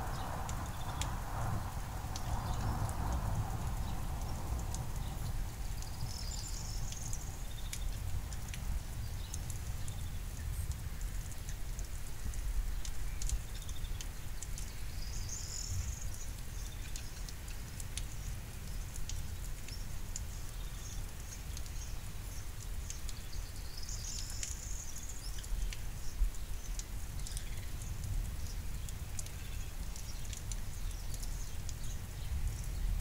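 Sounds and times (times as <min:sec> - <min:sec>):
clicks of raindrops: 0:00.0 - 0:33.0
rain pattering: 0:00.0 - 0:33.0
small bird singing: 0:05.0 - 0:08.0, 0:12.7 - 0:17.3, 0:19.7 - 0:32.9.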